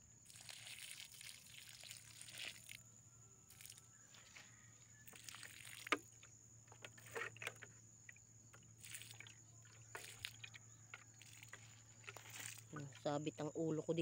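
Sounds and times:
water splashing onto plants: 0.2 - 2.8, 3.5 - 3.8, 5.1 - 6.2, 8.8 - 13.3.

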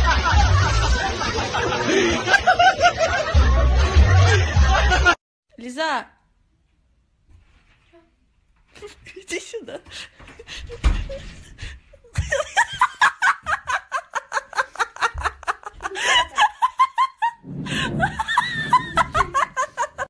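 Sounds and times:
person laughing hard: 0.0 - 5.2, 12.1 - 20.0.

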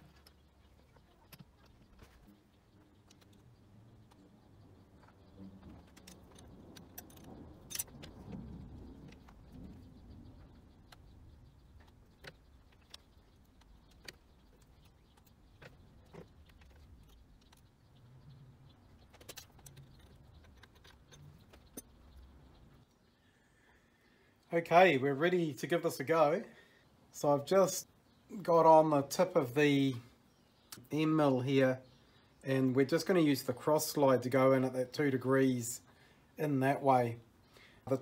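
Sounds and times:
metallic clicks and clinks: 5.8 - 8.3.

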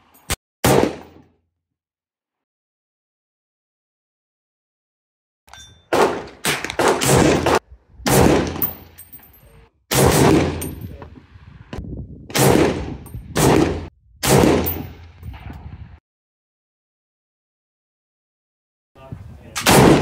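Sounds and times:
rifle shots: 0.6 - 1.2, 5.9 - 8.8, 9.9 - 10.8, 12.3 - 15.5, 19.6 - 20.0.

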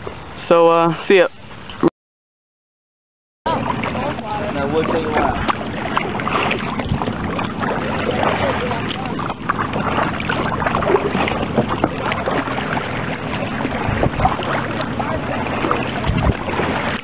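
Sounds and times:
steady rushing water: 0.0 - 1.9, 3.5 - 17.0
paddle splashing in water: 3.5 - 17.0.

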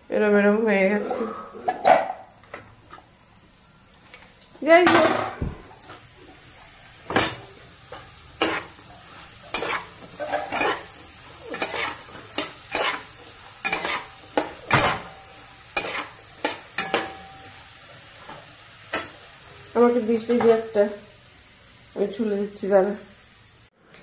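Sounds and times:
oil sizzling: 0.0 - 23.8
metal spatula scraping a pan: 0.8 - 2.0, 7.1 - 19.2.

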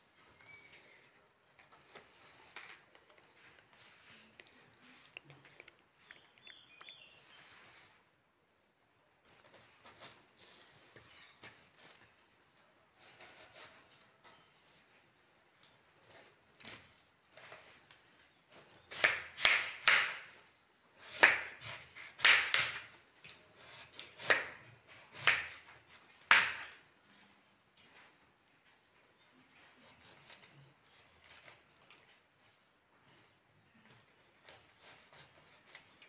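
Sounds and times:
knife cutting watermelon: 9.4 - 12.0, 12.8 - 14.1, 18.5 - 27.3, 34.1 - 36.0.

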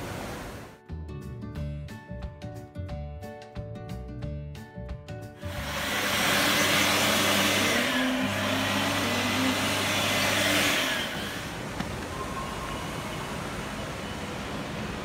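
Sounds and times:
background music: 0.7 - 11.0
electric hand dryer blowing: 5.4 - 15.0.

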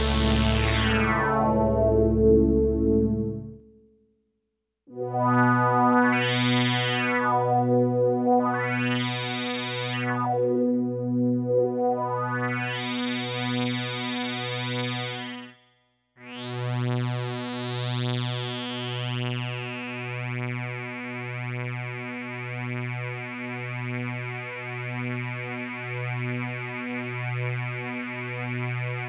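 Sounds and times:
synth holding pulsing low note: 0.0 - 3.6.

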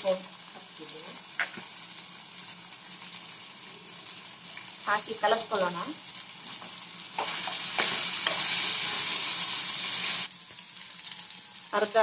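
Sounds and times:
meat sizzling in a frying pan: 0.0 - 12.0
spatula stirring in a pan: 6.3 - 11.4.

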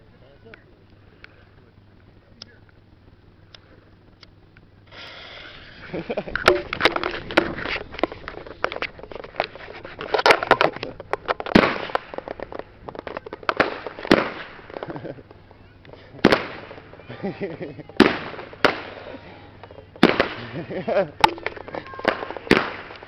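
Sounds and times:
lit fuse hissing: 4.9 - 5.8
fireworks popping and cracking: 4.9 - 23.0.

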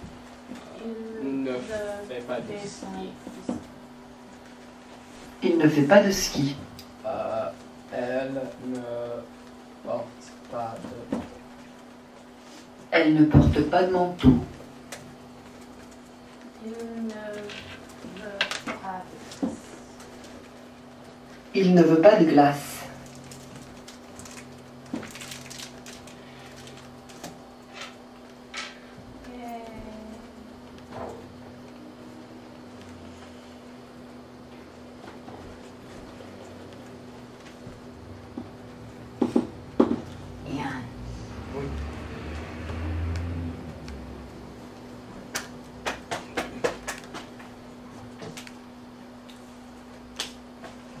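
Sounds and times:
steady low hum: 0.0 - 51.0
low hum: 27.8 - 45.8.

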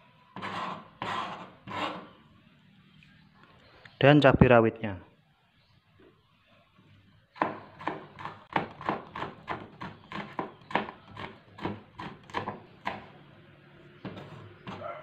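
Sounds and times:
knife chopping on cutting board: 7.4 - 13.1.

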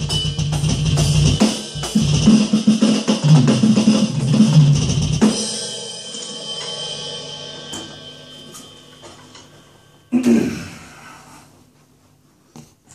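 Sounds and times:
cymbal crash ringing: 5.2 - 11.1.

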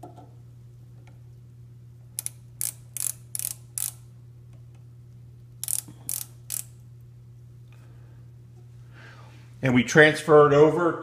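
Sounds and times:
micrometer ratchet clicking: 2.2 - 4.0, 5.6 - 6.8.

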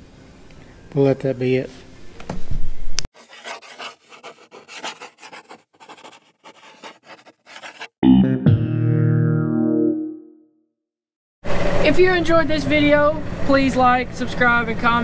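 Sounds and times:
hand rubbing over camera: 3.2 - 7.9
scratching strokes on paper: 3.2 - 7.9
guitar music: 8.1 - 9.4.

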